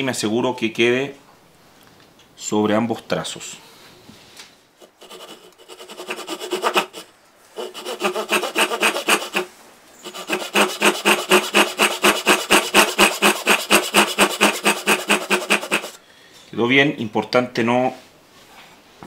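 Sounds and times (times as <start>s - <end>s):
pull saw cutting wood: 4.8s - 16.0s.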